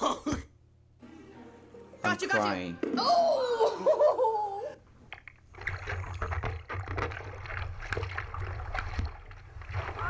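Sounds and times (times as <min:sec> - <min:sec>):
sea water sloshing and splashing: 0:05.2 - 0:10.0.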